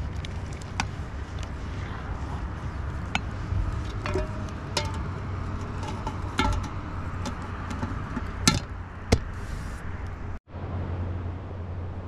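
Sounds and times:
steady low rumble: 0.0 - 12.0
metal lid clinking on pot: 3.9 - 8.7.

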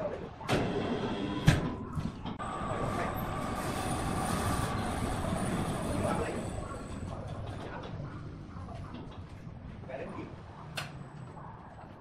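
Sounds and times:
hoist motor humming and whining: 2.2 - 7.6.

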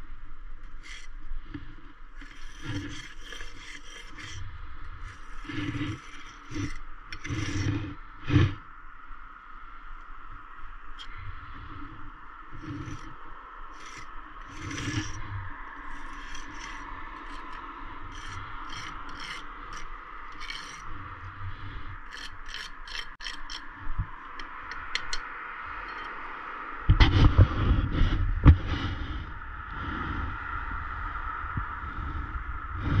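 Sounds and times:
scrapes and clicks on brickwork: 0.6 - 8.6, 12.5 - 13.1, 13.7 - 21.0, 22.0 - 23.7, 24.3 - 26.1.

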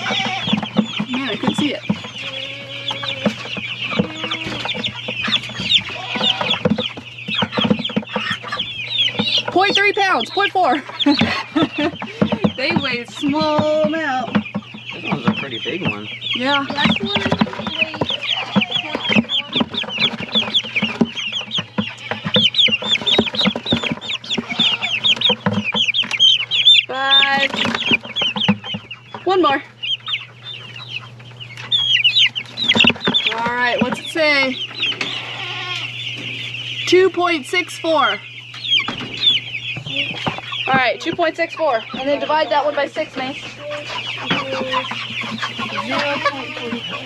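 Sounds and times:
chicks peeping: 0.0 - 47.0
knocks in plastic bucket: 3.2 - 8.4, 11.1 - 26.2, 27.0 - 28.9.

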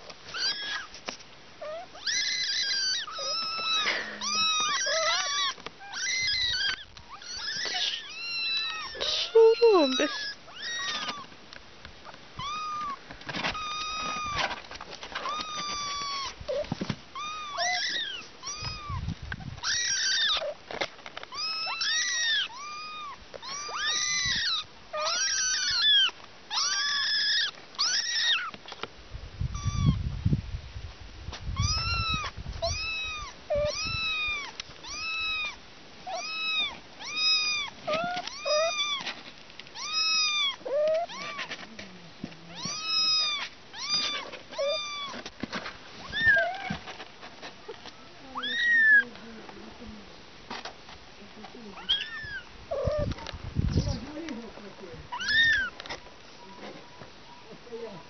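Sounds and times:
kittens meowing: 0.2 - 0.9, 1.6 - 11.3, 12.0 - 14.6, 15.2 - 20.6, 21.3 - 28.6, 29.5 - 30.0, 31.6 - 41.8, 42.5 - 45.3, 46.0 - 46.9, 47.8 - 49.2, 51.5 - 54.5, 55.1 - 56.0.

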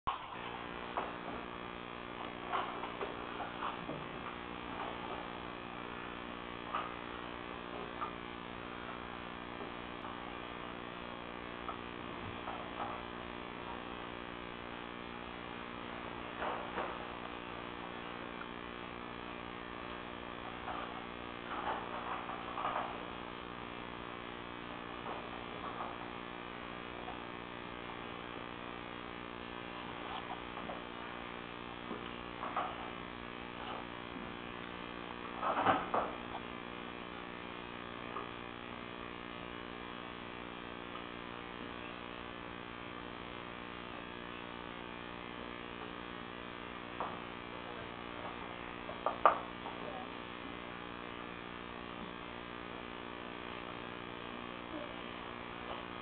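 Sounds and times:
electrical hum: 0.1 - 56.0.

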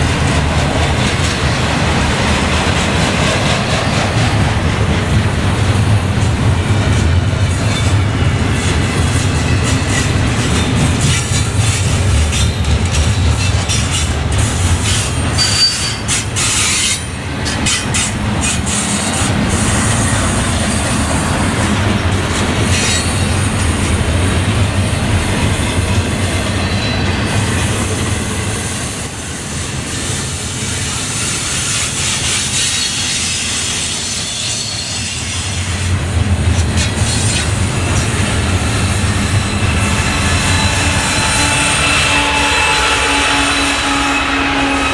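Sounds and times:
diesel locomotive rumble: 0.0 - 44.9
freight train wheels rumbling: 0.0 - 44.9
high-pitched wheel squeal: 14.8 - 19.0, 24.6 - 35.9, 37.1 - 44.9.

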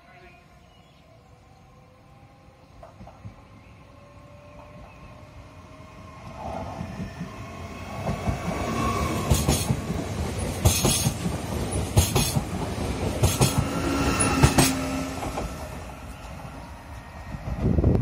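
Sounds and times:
electric train passing: 0.0 - 18.0
wheel clacks over rail joints: 9.2 - 13.7.

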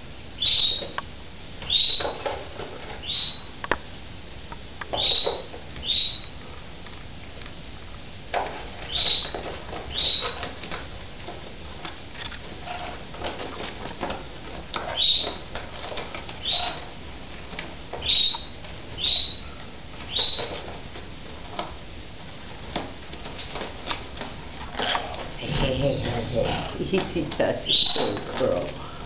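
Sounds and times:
squeaky parrot calls: 0.4 - 1.0, 5.0 - 6.3, 8.9 - 10.4, 16.4 - 16.8, 18.0 - 19.4, 24.8 - 27.0, 27.6 - 28.3.

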